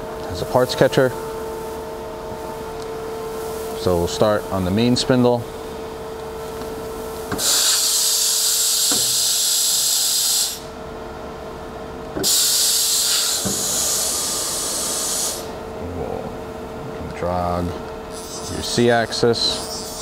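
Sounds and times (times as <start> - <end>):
air hissing: 7.3 - 10.7, 12.2 - 15.6
machine hum: 10.6 - 20.0.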